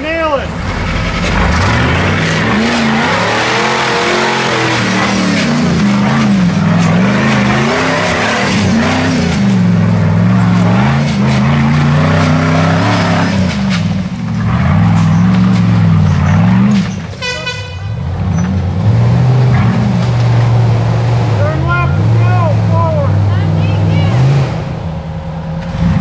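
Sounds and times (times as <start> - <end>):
buggy engine revving: 0.0 - 26.0.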